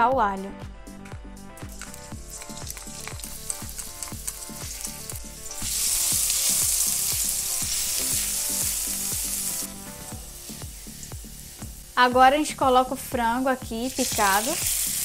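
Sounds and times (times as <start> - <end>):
background music with steady beat: 0.0 - 15.0
garlic sizzling in hot oil: 1.6 - 15.0
wooden spoon stirring: 1.7 - 5.6.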